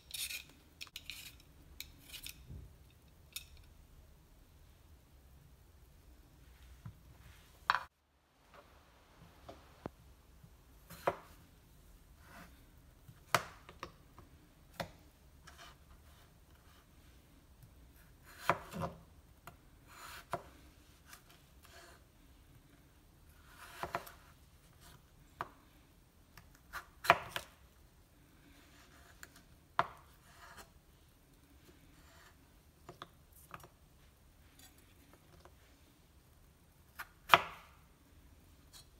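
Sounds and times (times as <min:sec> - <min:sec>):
knife slicing through potato: 0:17.9 - 0:19.0, 0:23.4 - 0:25.0.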